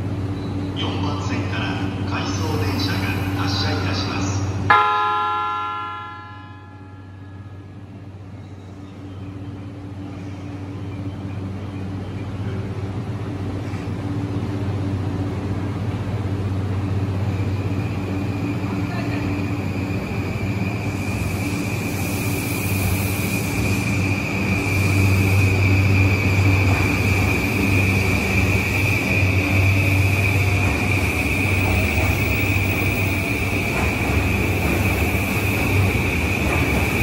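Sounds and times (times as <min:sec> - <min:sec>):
train low hum: 0:00.0 - 0:37.0
train chime: 0:02.8 - 0:08.2.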